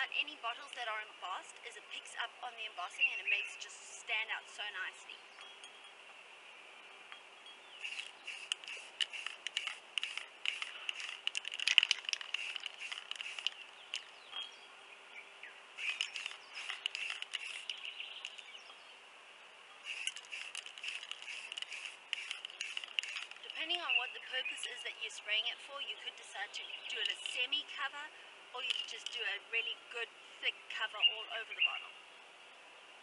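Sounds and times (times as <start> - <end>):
aerosol spray can bursts: 7.8 - 13.6, 15.8 - 17.8, 19.8 - 23.6.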